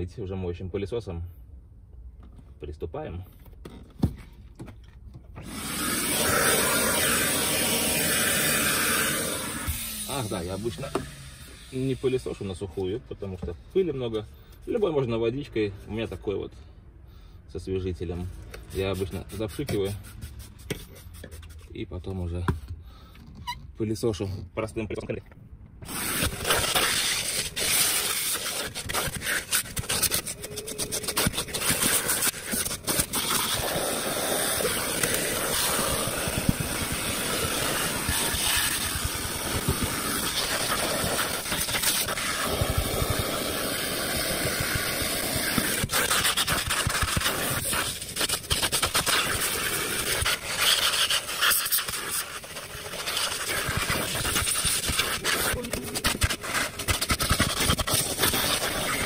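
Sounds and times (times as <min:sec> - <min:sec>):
vacuum cleaner running: 0:05.4 - 0:11.8, 0:33.4 - 0:45.9.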